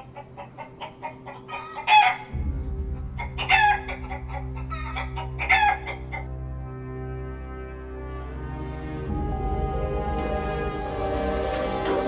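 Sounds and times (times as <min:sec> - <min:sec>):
hen squawks: 0:00.0 - 0:02.3, 0:03.2 - 0:06.3
hens clucking rapidly: 0:00.0 - 0:02.4, 0:03.0 - 0:06.3
low music drone: 0:00.0 - 0:12.0.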